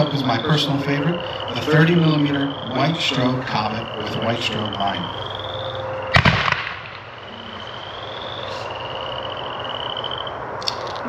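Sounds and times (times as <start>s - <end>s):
steady high trill: 0.0s - 10.5s
firework bang: 6.1s - 7.0s.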